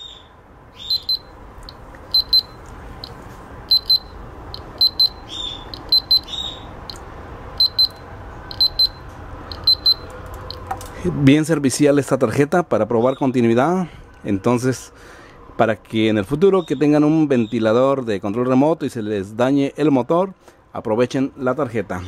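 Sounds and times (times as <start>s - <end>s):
piezo buzzer double beeps: 0.8s - 7.0s, 7.6s - 10.7s.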